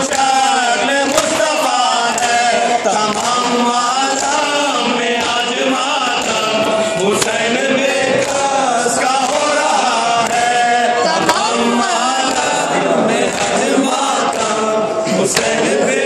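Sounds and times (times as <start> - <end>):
two men singing a lament: 0.0 - 16.0
chest-beating slaps: 6.1 - 10.6, 11.2 - 12.6.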